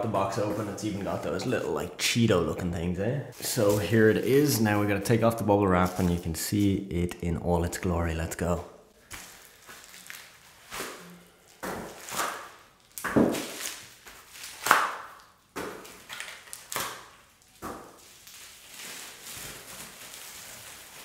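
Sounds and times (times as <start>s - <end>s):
bubble wrap crinkling: 3.4s - 6.4s, 9.0s - 21.0s.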